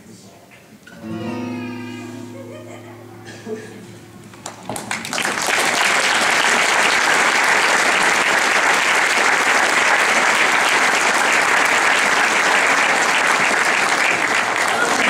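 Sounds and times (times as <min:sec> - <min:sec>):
audience applauding: 0:04.2 - 0:15.0.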